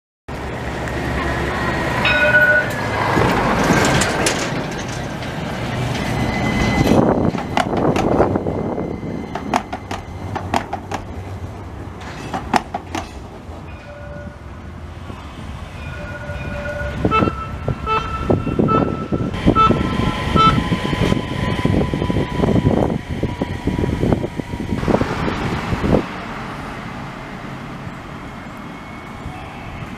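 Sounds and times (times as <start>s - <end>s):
tram rumbling past: 0.3s - 29.9s
wheels clicking over rails: 2.0s - 8.4s.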